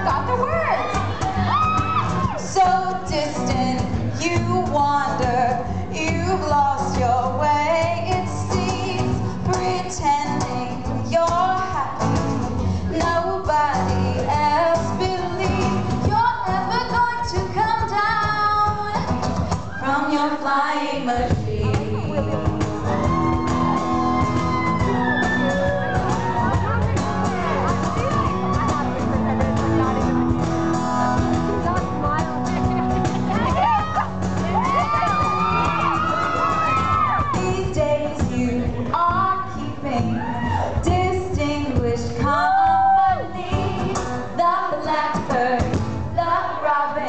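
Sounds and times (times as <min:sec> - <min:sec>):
backing band with guitar: 0:00.0 - 0:47.0
woman singing into a microphone: 0:02.4 - 0:23.2, 0:37.1 - 0:47.0.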